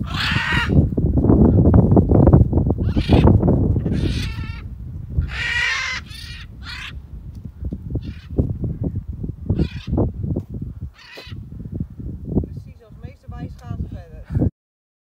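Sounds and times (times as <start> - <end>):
parrots squawking: 0.0 - 0.8, 2.8 - 7.0, 8.0 - 8.4, 9.5 - 10.0, 10.9 - 11.4
wind rumble on microphone: 0.0 - 14.5.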